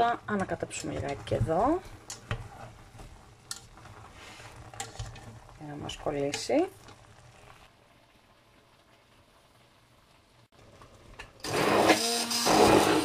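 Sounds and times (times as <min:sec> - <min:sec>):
immersion blender whirring: 0:11.4 - 0:13.0.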